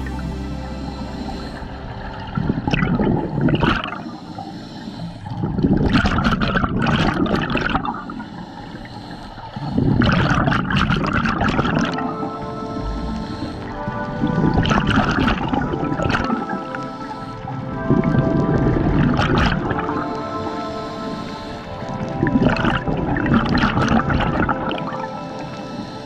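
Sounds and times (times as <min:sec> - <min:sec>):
regulator breathing: 0:00.0 - 0:05.6, 0:12.1 - 0:14.6
exhaled bubbles underwater: 0:00.0 - 0:26.0.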